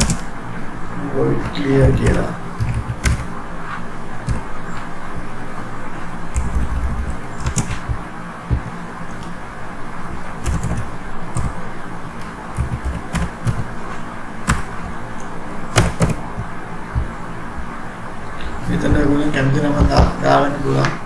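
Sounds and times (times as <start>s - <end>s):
keyboard keys clicking: 0.0s - 0.3s, 1.4s - 3.3s, 4.2s - 4.9s, 6.3s - 9.4s, 10.4s - 11.6s, 12.5s - 13.7s, 14.4s - 17.1s.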